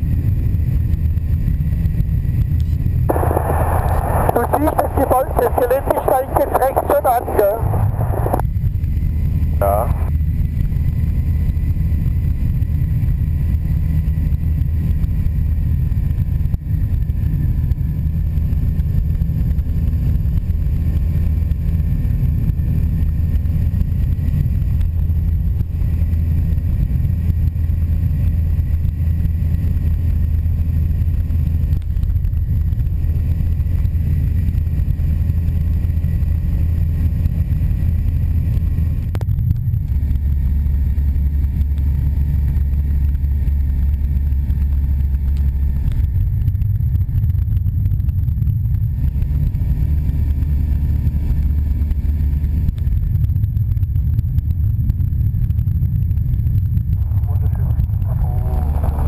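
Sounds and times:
wind rushing over microphone: 0:00.0 - 0:40.3, 0:52.5 - 0:59.0
light aircraft engine droning: 0:00.0 - 0:59.0.

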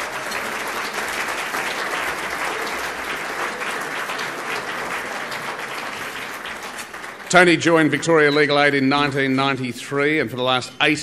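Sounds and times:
audience applause: 0:00.0 - 0:08.4.

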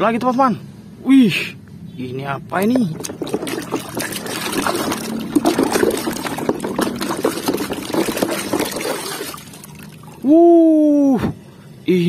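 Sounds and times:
water sloshing in plastic tub: 0:02.6 - 0:10.2.

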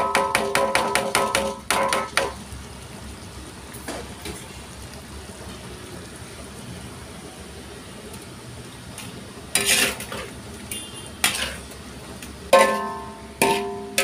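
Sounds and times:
wok clanking and ringing: 0:00.0 - 0:02.3, 0:09.6 - 0:11.6, 0:12.5 - 0:14.0
low steady cooking noise: 0:00.0 - 0:14.0.

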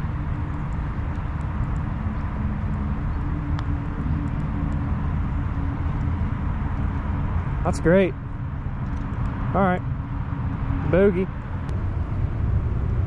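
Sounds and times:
faint distant engine hum: 0:00.0 - 0:13.0
low outdoor rumble: 0:00.0 - 0:13.0.

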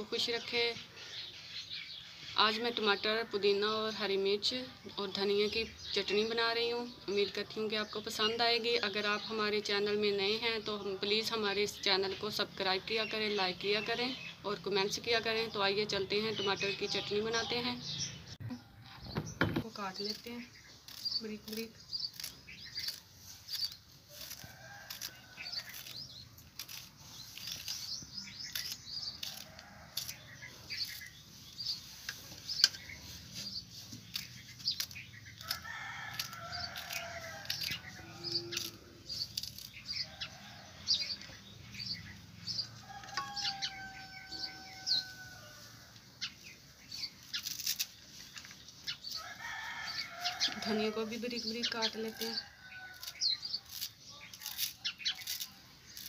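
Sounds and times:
knife slicing chillies: 0:20.0 - 0:37.9, 0:51.8 - 0:56.0.

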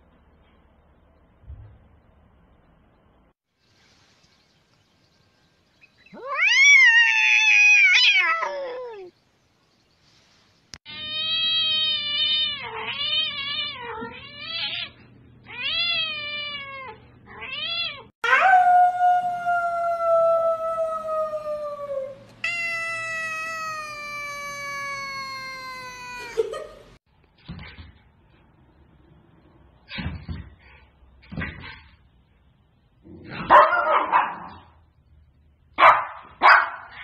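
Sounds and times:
cats meowing: 0:06.1 - 0:09.1, 0:10.9 - 0:18.1, 0:22.4 - 0:26.5.

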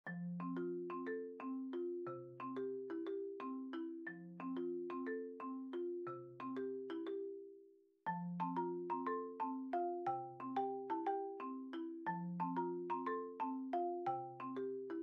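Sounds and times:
bouncy tune of struck notes: 0:08.1 - 0:15.0.

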